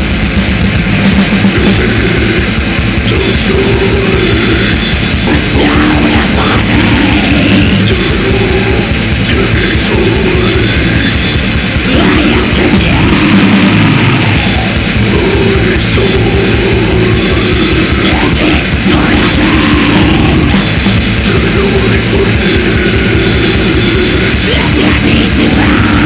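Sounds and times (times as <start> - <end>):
death metal band playing: 0.0 - 26.0
rapid kick drum beats: 0.0 - 26.0.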